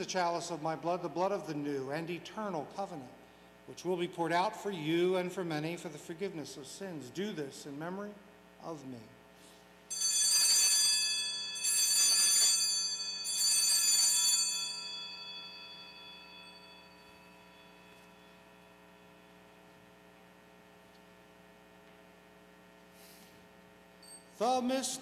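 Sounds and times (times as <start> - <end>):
faint mains hum: 0.0 - 25.0
altar bells ringing: 9.9 - 19.4.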